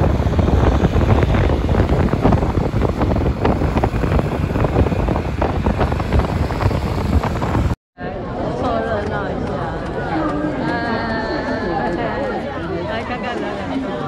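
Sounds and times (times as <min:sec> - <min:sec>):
scooter road noise: 0:00.0 - 0:07.8
wind buffeting microphone: 0:00.0 - 0:07.8.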